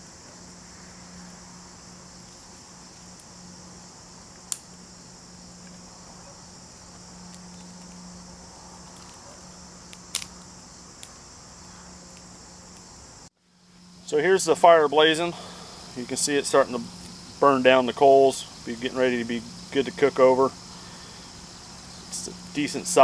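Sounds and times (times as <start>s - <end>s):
insects chirring: 0.0s - 23.0s
twig fire snapping: 4.3s - 4.8s, 8.8s - 11.2s.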